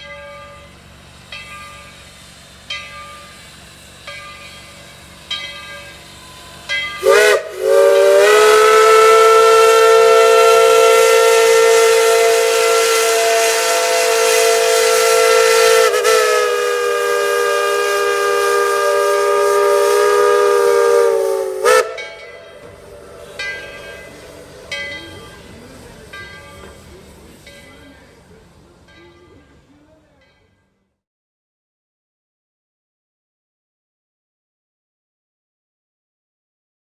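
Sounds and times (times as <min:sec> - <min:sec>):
steam locomotive whistle: 0:05.7 - 0:25.8.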